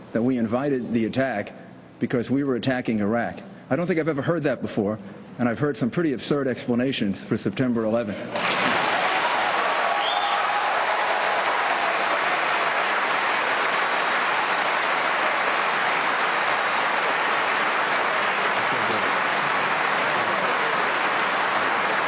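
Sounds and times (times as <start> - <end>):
audience applauding: 8.4 - 22.0.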